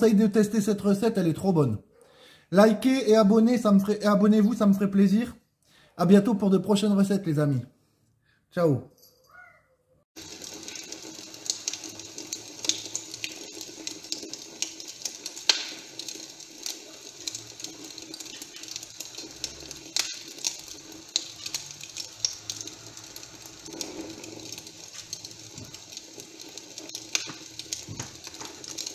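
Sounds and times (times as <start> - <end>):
wood fire crackling: 10.2 - 28.9.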